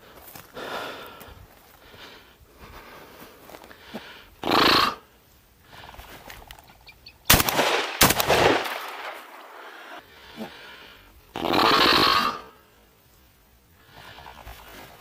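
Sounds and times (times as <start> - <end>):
shotgun shots with echo: 7.3 - 9.6.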